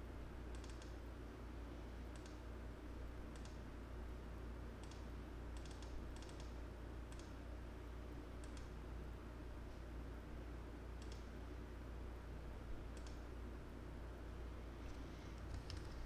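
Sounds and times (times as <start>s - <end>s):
low electrical hum: 0.0s - 16.0s
computer mouse clicks: 0.5s - 1.0s, 2.1s - 2.4s, 3.3s - 3.6s, 4.8s - 7.4s, 8.4s - 8.7s, 11.0s - 11.3s, 12.9s - 13.2s, 15.4s - 16.0s.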